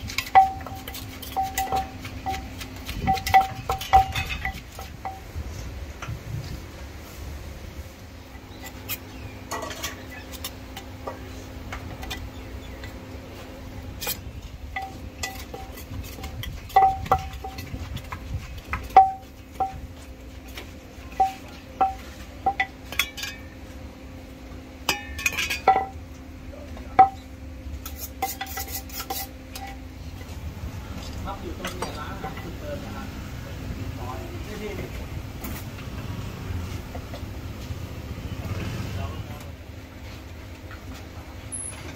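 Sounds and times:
metal utensils clanking on pan: 0.0s - 5.3s, 8.6s - 13.0s, 14.0s - 19.8s, 20.5s - 23.6s, 24.8s - 26.0s, 26.9s - 29.9s, 31.3s - 32.7s.

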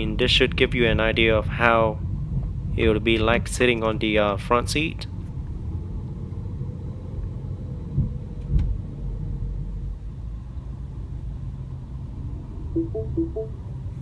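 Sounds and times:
car engine and tyre rumble: 4.8s - 12.6s.

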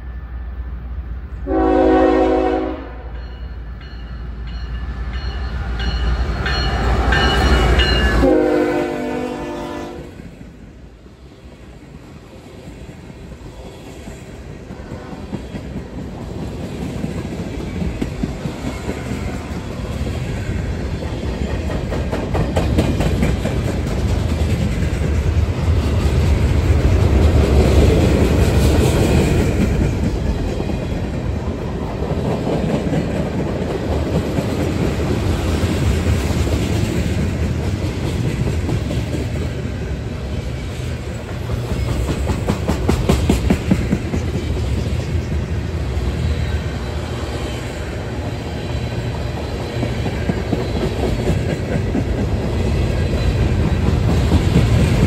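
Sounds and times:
locomotive horn: 1.4s - 3.2s, 8.1s - 10.2s
train wheels clicking on rails: 9.6s - 55.0s.

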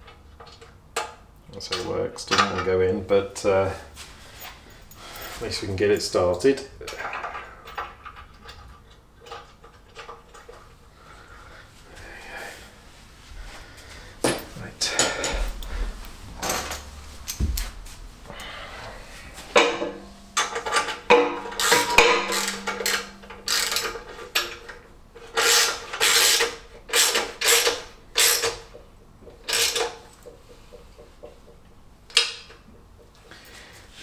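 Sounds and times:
ratchet spanner pawl clicking: 20.4s - 24.5s.

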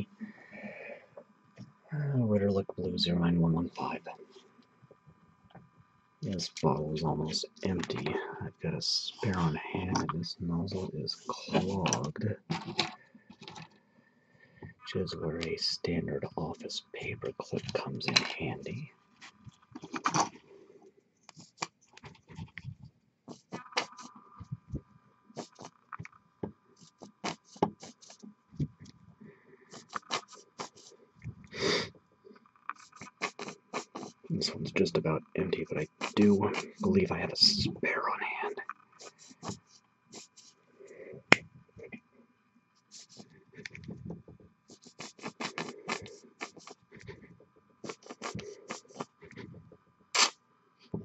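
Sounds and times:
squeeze bottle sputtering: 23.3s - 24.2s, 25.4s - 25.8s, 26.8s - 28.2s, 29.7s - 30.9s, 32.7s - 34.9s, 35.7s - 37.6s, 39.0s - 40.6s, 42.9s - 43.3s, 44.7s - 47.1s, 47.8s - 49.4s, 50.1s - 50.4s.

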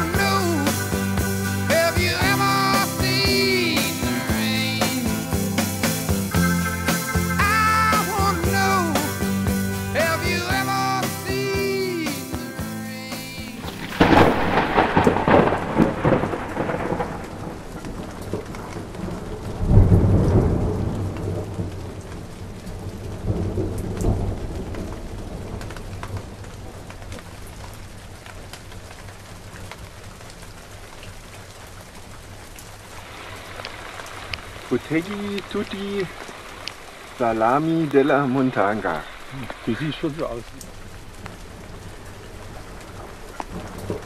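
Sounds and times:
rain hiss: 0.0s - 44.0s
thunder rolling: 13.6s - 26.8s.

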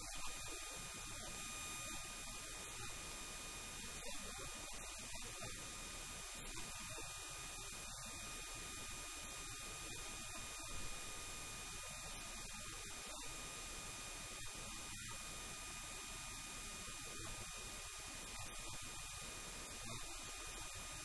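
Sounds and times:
thin constant tones: 0.0s - 21.0s.

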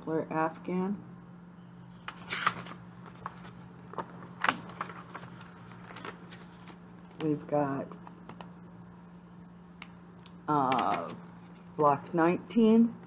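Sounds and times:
faint steady hum: 0.0s - 13.0s
paper rustling and crinkling: 2.0s - 8.5s.

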